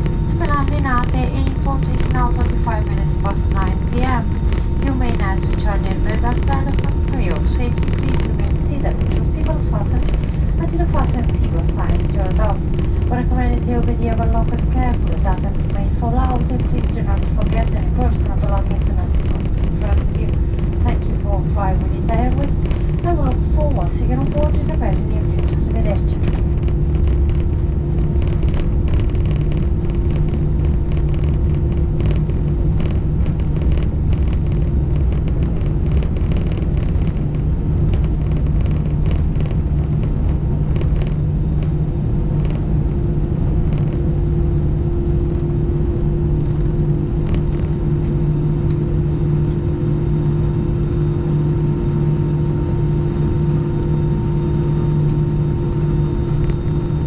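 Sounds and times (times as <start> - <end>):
cabin rumble: 0.0 - 57.0
jet engines idling hum: 0.0 - 57.0.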